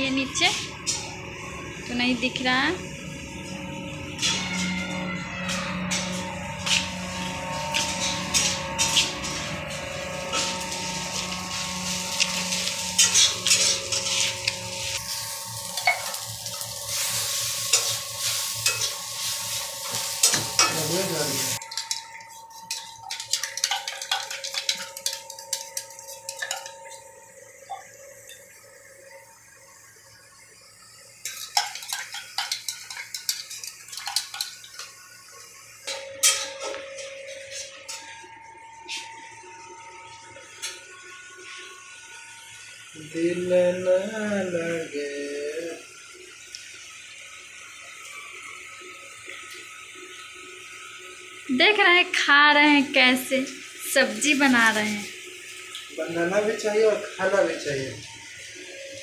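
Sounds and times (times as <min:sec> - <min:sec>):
food sizzling in a pan: 0:00.0 - 0:39.6, 0:40.4 - 0:59.0
spoon scraping and clinking: 0:12.2 - 0:14.6, 0:18.6 - 0:19.0, 0:19.8 - 0:20.8, 0:21.5 - 0:27.0, 0:31.2 - 0:34.7.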